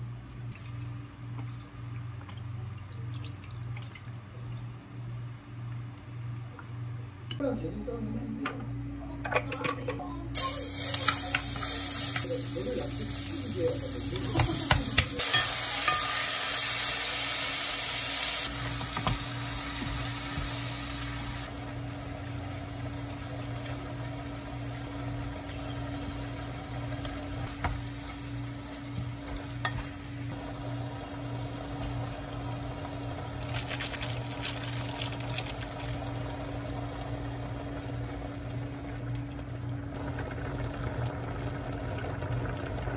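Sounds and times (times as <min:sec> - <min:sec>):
low steady hum: 0:00.0 - 0:42.9
food sizzling in frying pan: 0:10.4 - 0:28.6, 0:29.5 - 0:37.7.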